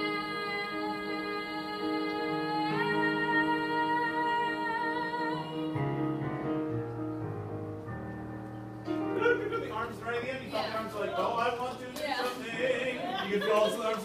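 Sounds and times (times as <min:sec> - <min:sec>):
girl singing: 0:00.0 - 0:05.8
piano: 0:00.0 - 0:14.0.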